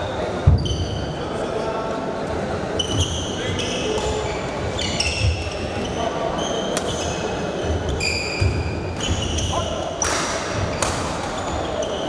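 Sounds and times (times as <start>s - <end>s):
shoes squeaking on wooden floor: 2.8s - 9.8s
racket hitting shuttlecock: 10.0s - 11.4s.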